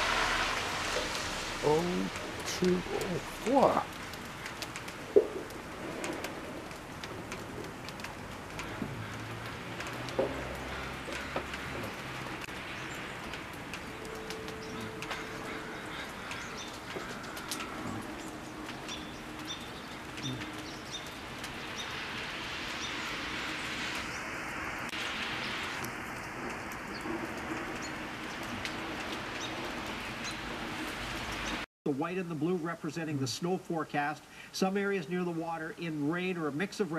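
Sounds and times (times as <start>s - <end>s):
snow hissing and ticking: 0.0s - 31.7s
birds calling: 0.8s - 31.7s
low cooing notes: 20.1s - 20.7s.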